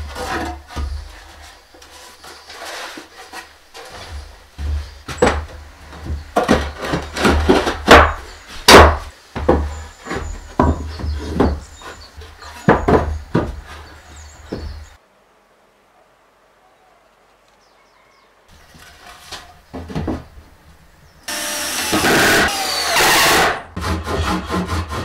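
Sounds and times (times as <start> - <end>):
wooden boards knocking: 3.7 - 14.9, 19.7 - 20.4.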